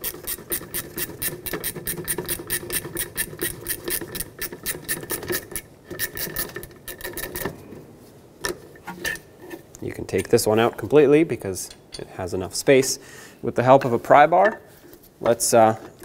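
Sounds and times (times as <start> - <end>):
ratcheting wrench clicking: 0.0 - 7.5.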